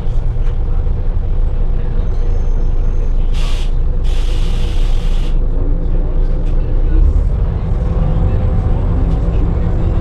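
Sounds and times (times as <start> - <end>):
bus engine rumbling: 0.0 - 10.0
compressed air hissing: 3.4 - 5.4.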